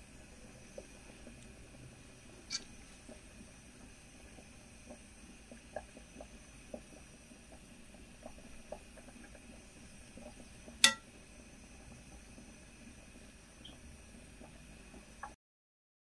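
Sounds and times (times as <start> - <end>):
utensil clinking against pot: 10.8 - 11.0.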